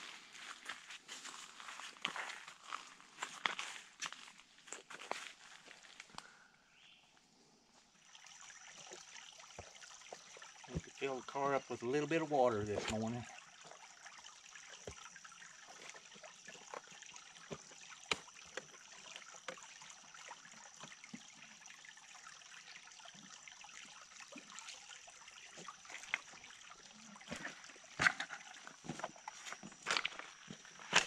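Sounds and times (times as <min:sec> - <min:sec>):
water trickling into radiator: 0:08.0 - 0:31.0.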